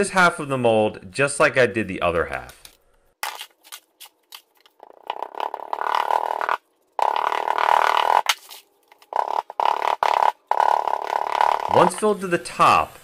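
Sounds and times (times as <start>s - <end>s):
gritty sand scraping: 11.2s - 12.9s.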